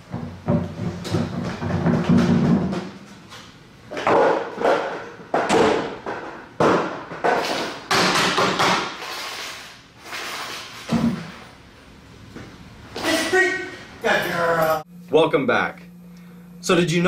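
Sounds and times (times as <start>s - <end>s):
plastic objects clattering bangs: 0.1s - 3.1s, 3.9s - 9.5s.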